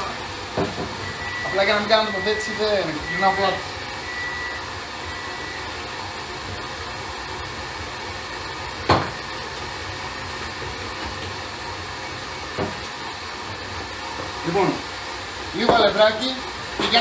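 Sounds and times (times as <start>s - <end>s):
stand mixer whirring: 0.0s - 17.0s.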